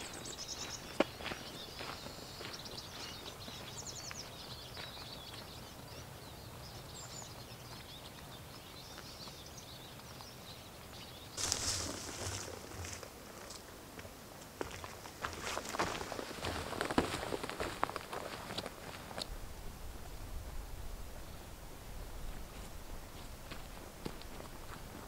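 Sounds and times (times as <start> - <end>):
footsteps on leafy path: 0.0 - 5.5, 11.4 - 19.3, 22.5 - 25.0
small birds chirping and trilling: 0.0 - 13.1
steady outdoor hiss: 0.0 - 25.0
loud rustle: 11.4 - 13.1.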